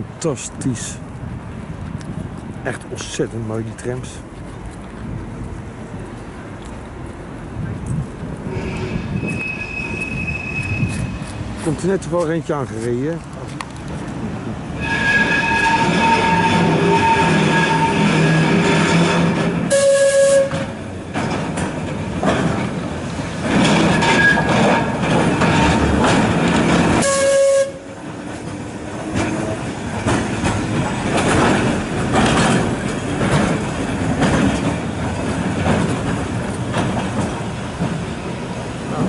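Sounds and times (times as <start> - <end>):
tram motor hum: 0.8 - 39.0
tram warning signal: 8.5 - 12.2, 14.8 - 20.8, 26.8 - 28.2
wheels clattering over rail joints: 20.4 - 39.0.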